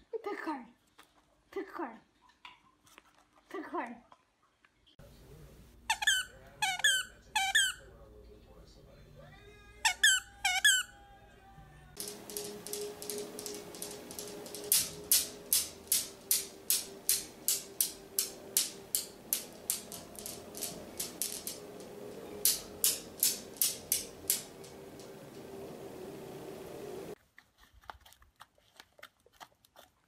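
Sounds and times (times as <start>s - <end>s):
metal balls clicking together: 12.0s - 26.4s.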